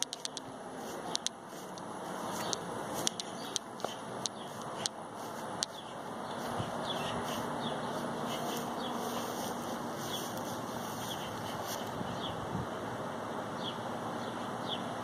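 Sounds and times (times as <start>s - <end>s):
sharp clicks: 0.0s - 0.5s, 1.1s - 5.0s
steady background hiss: 0.0s - 15.0s
bird chirps: 2.3s - 5.0s, 5.6s - 12.4s.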